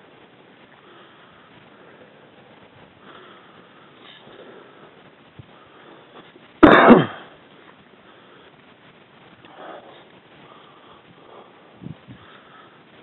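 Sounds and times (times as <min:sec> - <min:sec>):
person coughing: 0:06.6 - 0:07.3.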